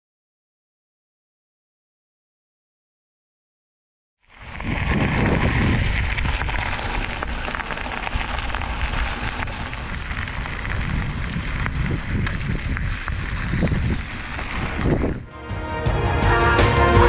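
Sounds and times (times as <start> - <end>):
wind buffeting microphone: 4.3 - 15.3.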